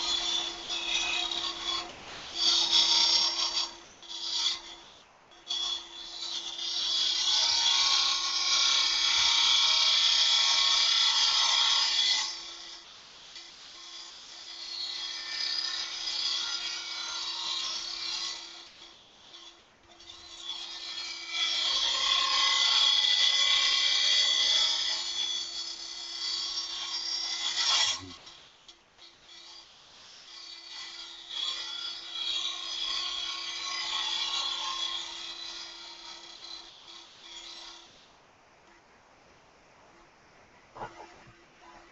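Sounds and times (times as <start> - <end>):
lathe tool scraping wood: 0.0 - 38.1
steady hum: 36.0 - 41.9.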